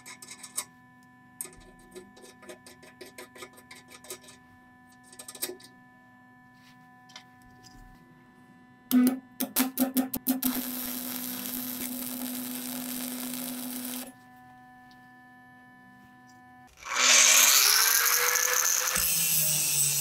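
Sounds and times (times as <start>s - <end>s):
welding arc crackling: 9.6s - 14.1s.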